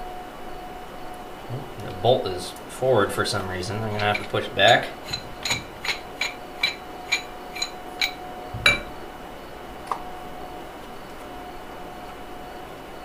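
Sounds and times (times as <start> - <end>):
heavier metallic knock: 8.6 - 9.0.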